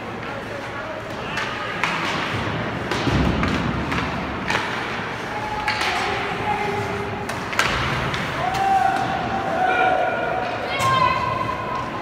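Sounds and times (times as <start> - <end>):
hockey sticks and puck clacking: 0.0 - 9.6
puck hitting boards: 1.1 - 6.3, 7.2 - 9.3.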